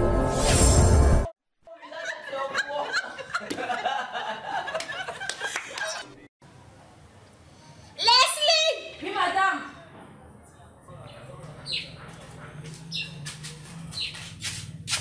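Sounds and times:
people laughing and chattering: 0:01.7 - 0:06.3, 0:09.9 - 0:14.7.

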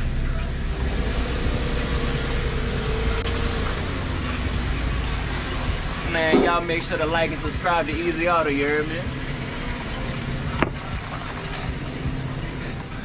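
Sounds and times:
pickup engine running: 0:00.0 - 0:13.0.

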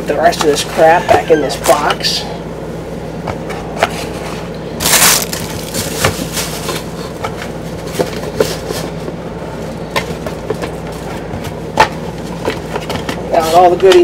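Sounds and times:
packing crinkling: 0:04.8 - 0:07.2.

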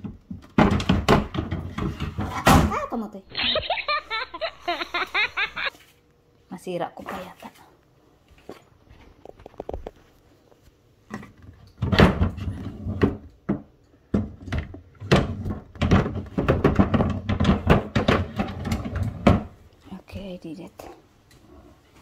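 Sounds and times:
wooden drawer knocks and thuds: 0:00.0 - 0:02.8.

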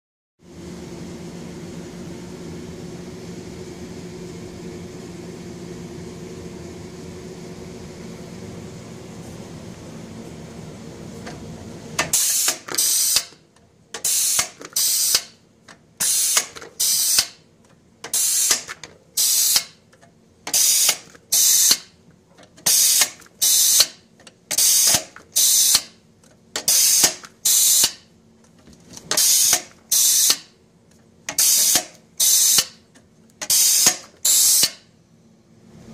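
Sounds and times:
steady hum: 0:00.5 - 0:35.9
pneumatic air hisses: 0:12.1 - 0:13.3, 0:14.0 - 0:15.3, 0:16.0 - 0:17.4, 0:18.1 - 0:19.7, 0:20.5 - 0:21.8, 0:22.7 - 0:25.9, 0:26.6 - 0:28.0, 0:29.1 - 0:30.5, 0:31.3 - 0:32.8, 0:33.4 - 0:34.8.

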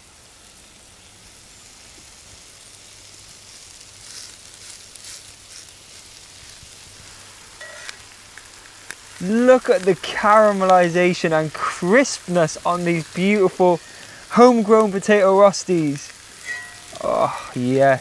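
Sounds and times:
patties sizzling in oil: 0:00.0 - 0:18.0.

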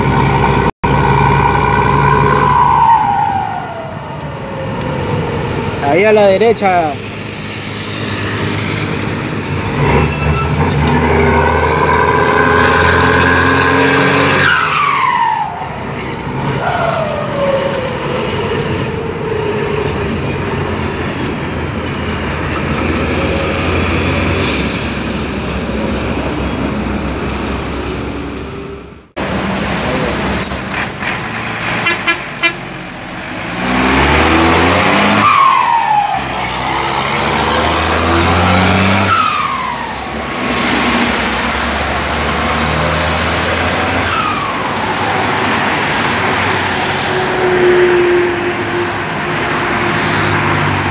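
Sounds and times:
bus diesel engine pulling: 0:00.0 - 0:50.9
turbo whistling howl: 0:01.0 - 0:05.0, 0:35.1 - 0:36.6.

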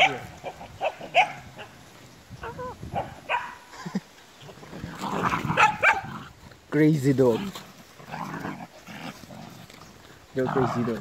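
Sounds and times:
dogs barking and yelping: 0:00.0 - 0:03.8, 0:04.9 - 0:06.4.

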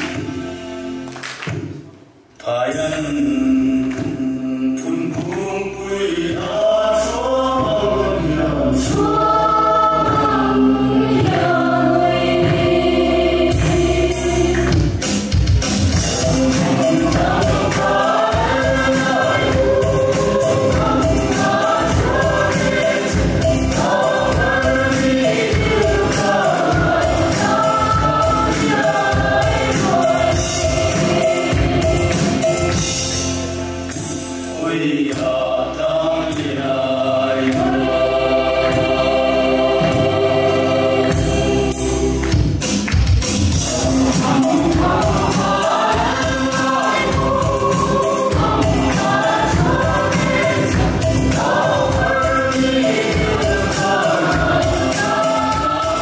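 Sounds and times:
hand-clapping: 0:00.0 - 0:00.4, 0:01.0 - 0:03.1, 0:03.8 - 0:04.4, 0:05.0 - 0:05.6, 0:10.0 - 0:10.5, 0:14.5 - 0:18.5, 0:42.2 - 0:43.5
group singing in chorus: 0:02.4 - 0:42.7, 0:43.4 - 0:56.0
barrel drum beat: 0:10.0 - 0:34.2, 0:37.6 - 0:56.0.

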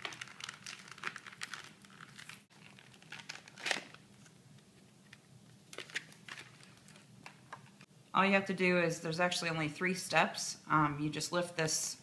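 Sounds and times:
plastic packaging crinkling: 0:00.0 - 0:04.4, 0:05.1 - 0:07.8.

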